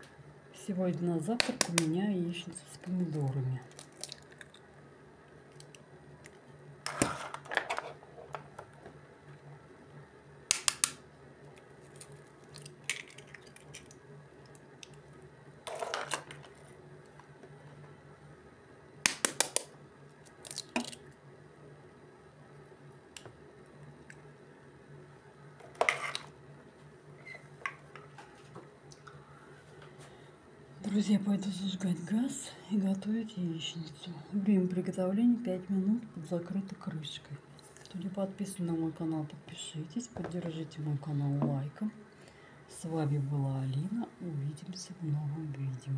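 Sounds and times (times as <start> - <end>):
faint low hum: 0.0 - 45.9
eggshells cracking: 3.0 - 4.7, 10.5 - 15.0, 20.3 - 21.1.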